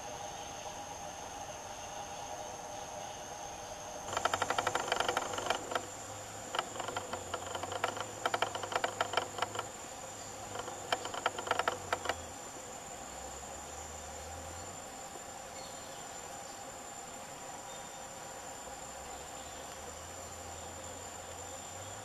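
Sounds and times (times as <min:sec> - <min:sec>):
high-pitched insect whine: 0:00.0 - 0:22.0
rapid clicking rattles: 0:04.1 - 0:09.8, 0:10.4 - 0:12.2.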